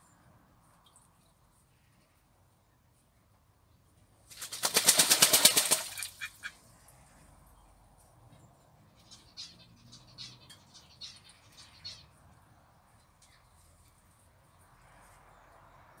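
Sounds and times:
water splashing: 4.3s - 6.4s
duck wings beating: 4.4s - 6.3s.

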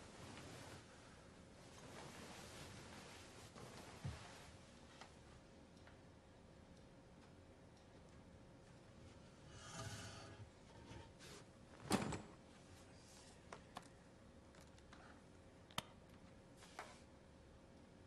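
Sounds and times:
soft rustle: 0.0s - 5.1s.

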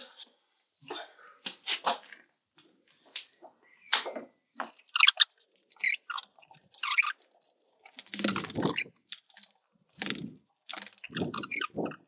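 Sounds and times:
crinkling and rustling handling: 4.6s - 11.9s.

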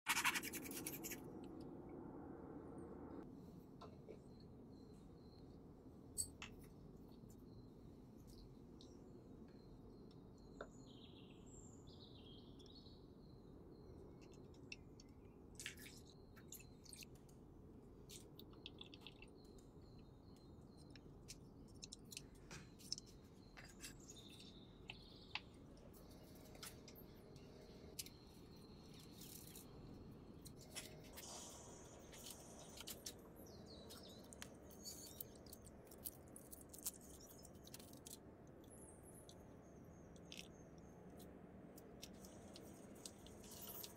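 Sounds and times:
faint bird chirps: 4.0s - 5.6s.

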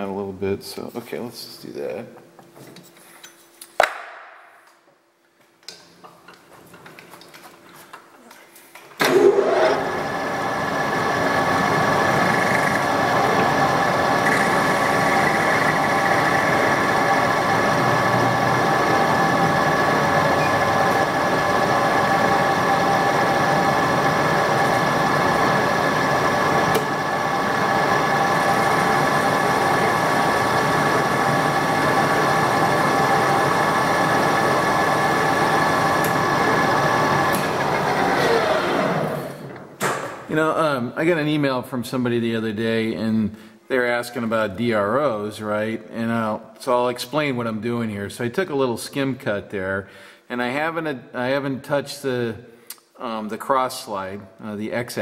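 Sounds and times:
metal lathe gear whine: 9.1s - 39.4s.

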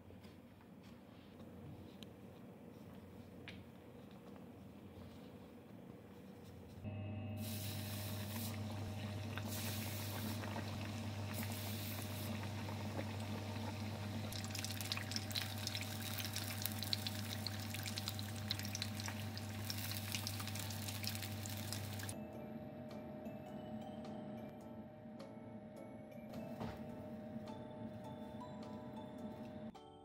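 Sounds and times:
fish deep-frying in oil: 7.5s - 22.2s.

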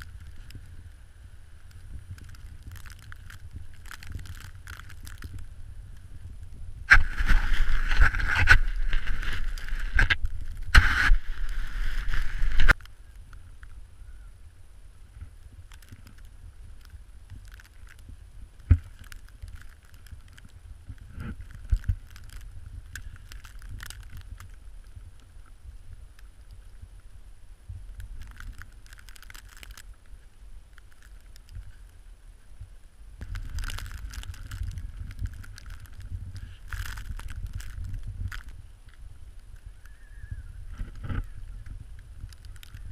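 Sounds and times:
dog paws crunching snow: 6.9s - 12.8s
scraping of snow: 6.9s - 12.8s.

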